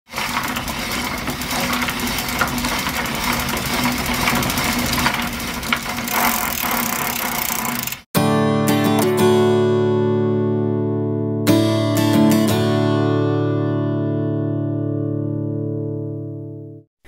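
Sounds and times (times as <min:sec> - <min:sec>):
mechanical clattering and whirring: 0:00.1 - 0:08.0
acoustic guitar chord: 0:08.2 - 0:16.8.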